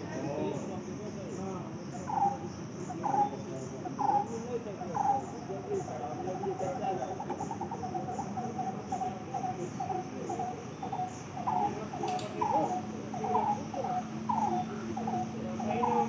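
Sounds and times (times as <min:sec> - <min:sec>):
faint steady hum: 0:00.0 - 0:16.0
animal chirping: 0:01.9 - 0:16.0
single click: 0:12.1 - 0:12.4.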